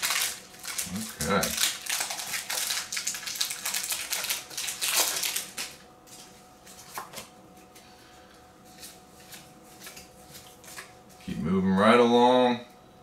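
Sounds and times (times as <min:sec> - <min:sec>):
foil wrapper crinkling: 0:00.0 - 0:07.3
cards being handled: 0:00.0 - 0:07.8, 0:08.7 - 0:11.3.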